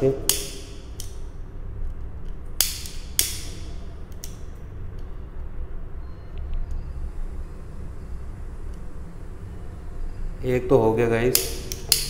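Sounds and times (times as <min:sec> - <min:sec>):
steady low hum: 0:00.0 - 0:12.0
lighter spark wheel clicks: 0:00.3 - 0:01.2, 0:02.6 - 0:04.4, 0:11.3 - 0:12.0.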